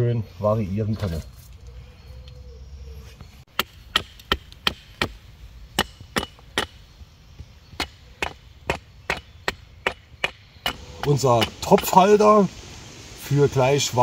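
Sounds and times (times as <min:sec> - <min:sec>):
hatchet chopping wood: 0:03.5 - 0:12.0.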